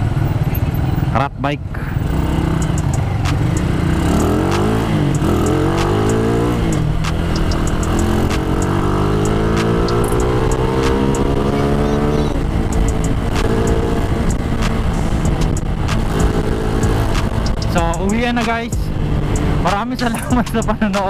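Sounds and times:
road and wind noise: 0:00.0 - 0:21.0
motorcycle engine accelerating: 0:01.8 - 0:21.0.

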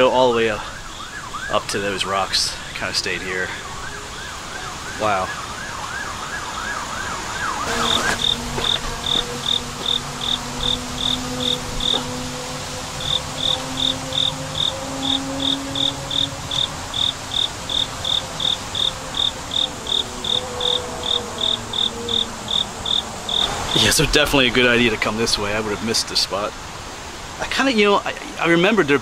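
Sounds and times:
siren yelping: 0:00.6 - 0:02.7, 0:03.4 - 0:23.8
cricket chirping: 0:07.6 - 0:23.9.

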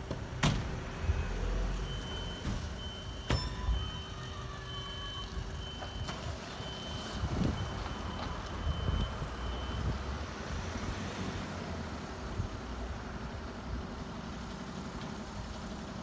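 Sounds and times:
high-pitched warning beeper: 0:01.7 - 0:09.9.

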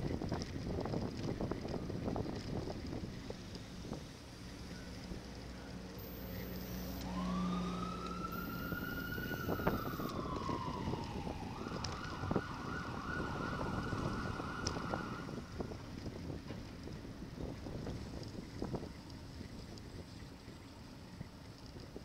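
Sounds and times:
road rumble: 0:00.0 - 0:22.0
wind: 0:00.0 - 0:22.0
emergency siren wailing and yelping: 0:06.0 - 0:15.4.

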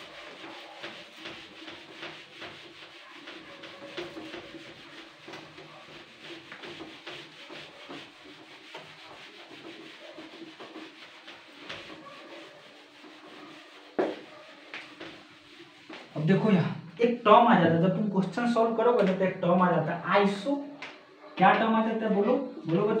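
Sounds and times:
cloth rubbing whiteboard: 0:00.0 - 0:16.6.

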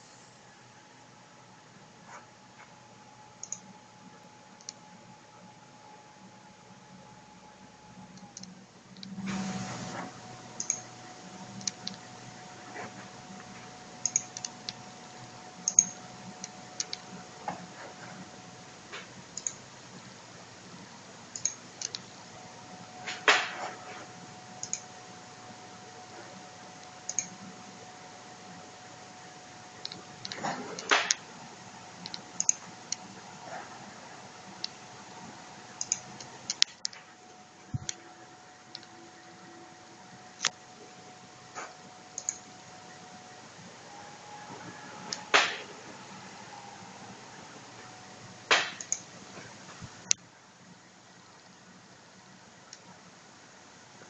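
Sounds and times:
faint high hum: 0:00.0 - 0:54.0
small sharp clicks: 0:03.4 - 0:03.7, 0:10.6 - 0:10.9, 0:14.0 - 0:14.8, 0:15.6 - 0:17.1, 0:19.4 - 0:19.6, 0:24.6 - 0:24.9, 0:26.8 - 0:27.4, 0:32.0 - 0:33.0, 0:35.8 - 0:37.0, 0:42.2 - 0:42.4, 0:48.5 - 0:49.1.

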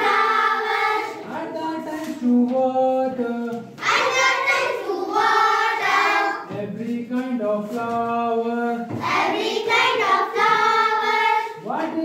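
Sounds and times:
children singing in unison: 0:00.0 - 0:01.4, 0:03.8 - 0:06.6, 0:08.9 - 0:11.6.

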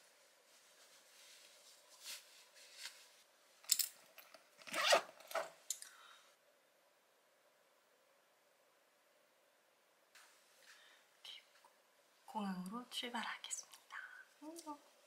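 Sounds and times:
clothing rustling: 0:00.0 - 0:05.6.

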